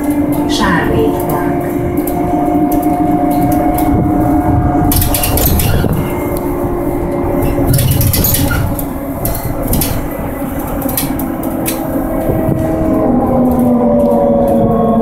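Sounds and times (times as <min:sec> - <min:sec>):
electric drive hum: 0:00.0 - 0:15.0
road rumble: 0:00.0 - 0:15.0
bodywork rattles and knocks: 0:01.2 - 0:12.8.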